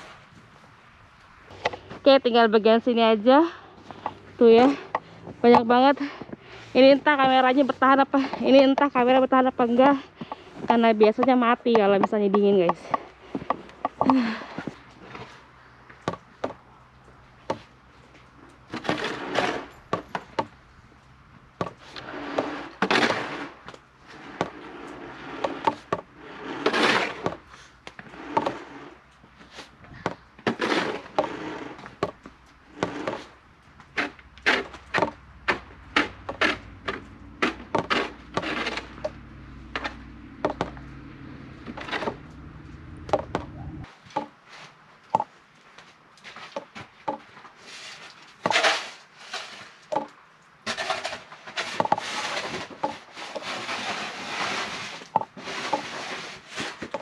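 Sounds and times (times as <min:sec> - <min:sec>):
snow shovel scraping: 0:01.5 - 0:15.4, 0:18.7 - 0:20.4, 0:21.6 - 0:40.8, 0:41.5 - 0:43.1, 0:47.6 - 0:49.9, 0:50.7 - 0:57.0.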